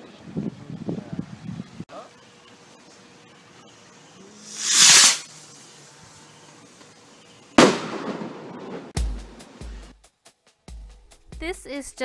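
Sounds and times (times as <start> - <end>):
firework rushing hiss: 4.4 - 5.6
firework bang: 4.5 - 5.2, 7.6 - 8.9.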